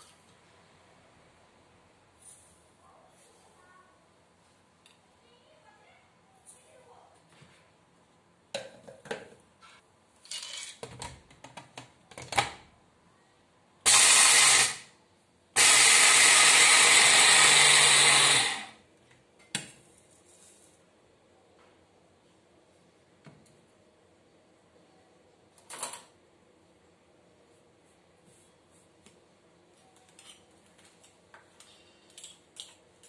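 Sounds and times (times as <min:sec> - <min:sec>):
electric blender grinding: 0:13.9 - 0:14.9, 0:15.6 - 0:18.8.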